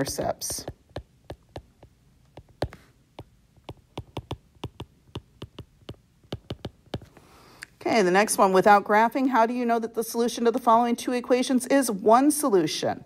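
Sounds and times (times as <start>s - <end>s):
stylus clicking on glass screen: 0.1s - 7.1s.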